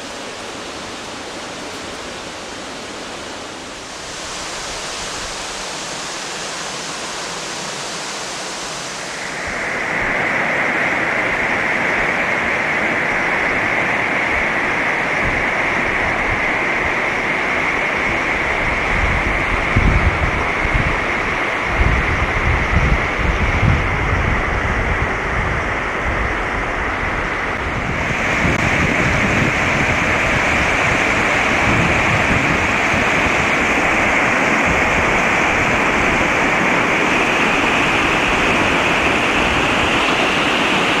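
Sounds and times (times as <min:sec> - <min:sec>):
waterfall rushing: 0:00.0 - 0:41.0
wind buffeting microphone: 0:09.2 - 0:41.0.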